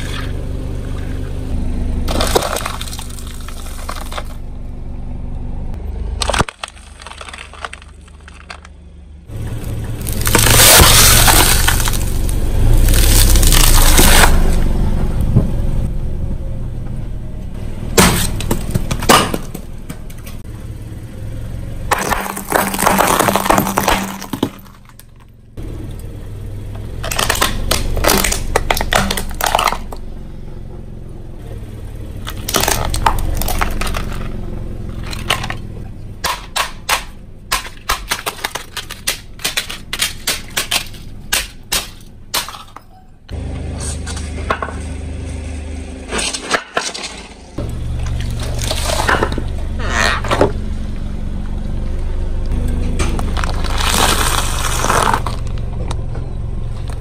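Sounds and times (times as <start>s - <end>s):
car low rumble: 0.0s - 57.0s
brittle objects crunching under tyre: 2.0s - 4.4s, 6.1s - 14.7s, 17.9s - 20.5s, 21.9s - 30.1s, 32.1s - 42.9s, 43.8s - 50.8s, 52.5s - 57.0s.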